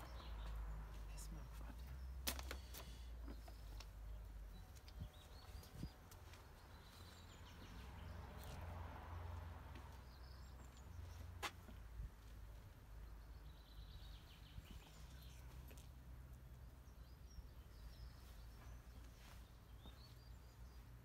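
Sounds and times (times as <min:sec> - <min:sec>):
bird chirps: 0:16.8 - 0:20.9.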